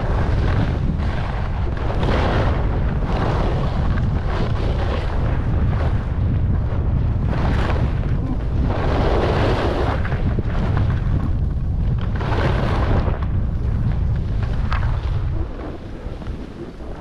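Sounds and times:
skis scraping on snow: 0.0s - 17.0s
wind buffeting microphone: 0.0s - 17.0s.

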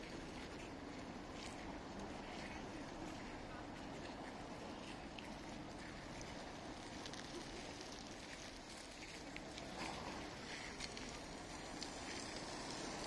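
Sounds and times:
faint crackles and ticks: 0.0s - 13.0s
outdoor ambient hiss: 0.0s - 13.0s.

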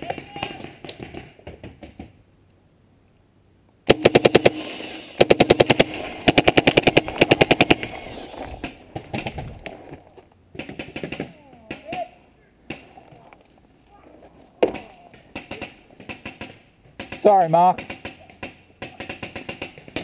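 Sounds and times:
paintball marker rapid fire: 3.9s - 9.4s, 10.5s - 12.1s, 14.6s - 20.0s.

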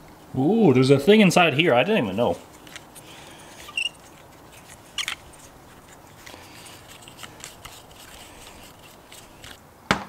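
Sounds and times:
screwdriver clicking and scraping metal: 2.4s - 9.6s.

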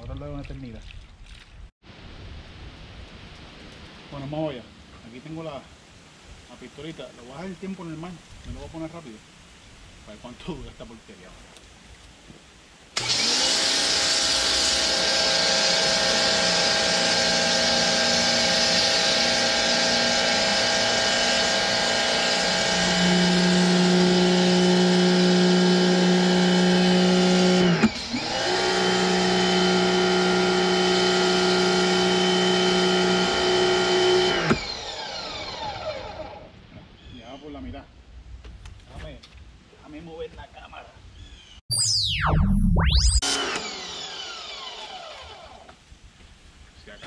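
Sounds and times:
pressure washer motor whine: 13.0s - 36.4s, 41.7s - 45.7s.

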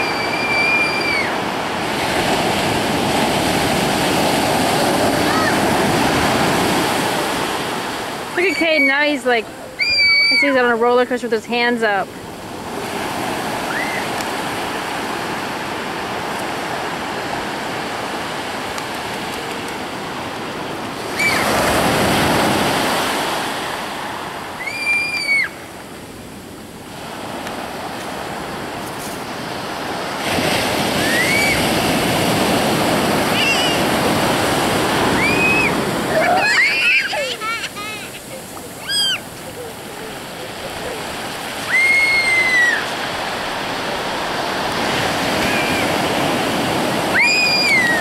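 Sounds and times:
children squealing: 0.0s - 1.4s, 5.2s - 5.7s, 8.3s - 10.8s, 13.6s - 14.2s, 21.1s - 21.6s, 24.6s - 25.6s, 31.0s - 31.6s, 33.3s - 34.0s, 35.1s - 39.7s, 41.6s - 43.0s, 45.4s - 46.0s, 47.0s - 48.0s
ocean surf breaking: 0.0s - 48.0s.

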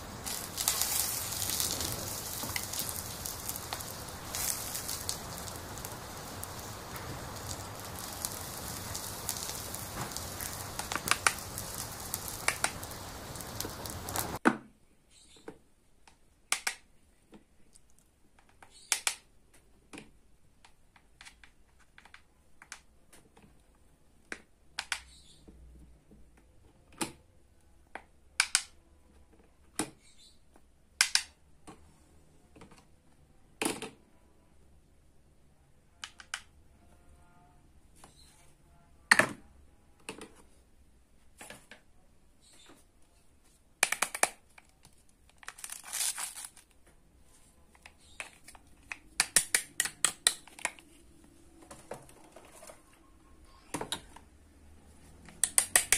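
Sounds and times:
steady sizzling hiss: 0.0s - 14.4s
plastic toy pieces clicking: 43.8s - 44.7s.

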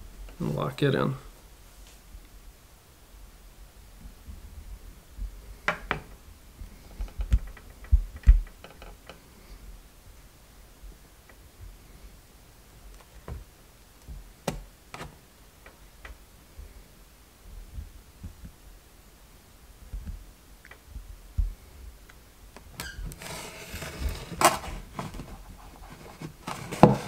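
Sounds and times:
faint clicks and creaks: 4.0s - 10.2s, 10.8s - 11.8s, 12.8s - 16.8s, 19.8s - 27.0s
foam board scraping rustle: 23.1s - 27.0s.

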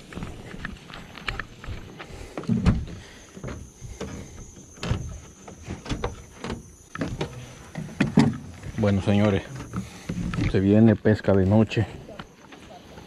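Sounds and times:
heavy thumps: 2.3s - 8.9s.

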